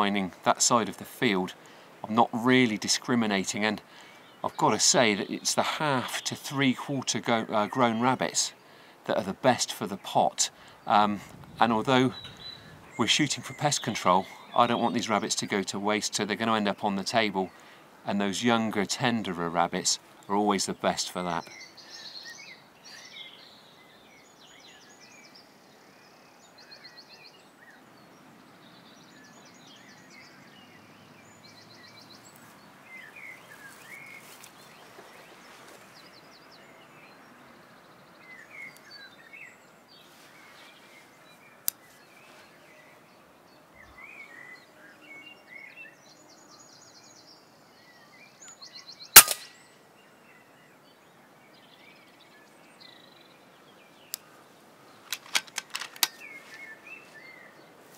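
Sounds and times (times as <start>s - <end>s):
birds chirping and trilling: 0.0s - 57.9s
air rifle shot: 49.2s - 49.6s.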